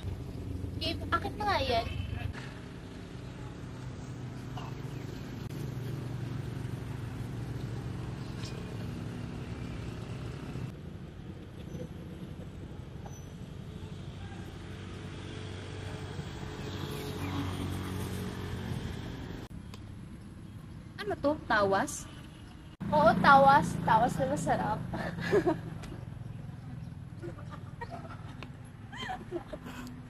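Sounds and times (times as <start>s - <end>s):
vehicle engine hum: 0.0s - 21.5s
traffic noise: 0.0s - 30.0s.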